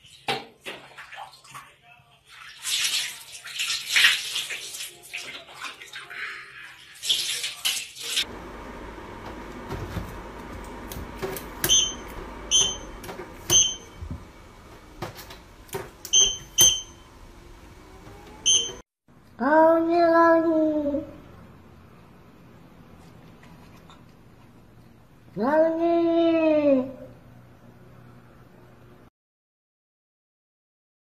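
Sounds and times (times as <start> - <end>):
water splashing in a tub: 0.0 - 8.3
air purifier low hum: 8.2 - 18.8
short electronic beeps: 11.6 - 14.0, 16.1 - 17.1, 18.4 - 18.8.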